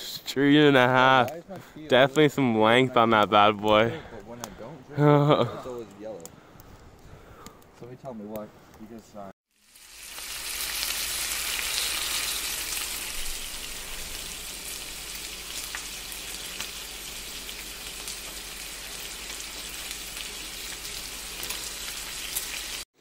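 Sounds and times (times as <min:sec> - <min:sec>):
pork sizzling in a pan: 0:09.5 - 0:22.9.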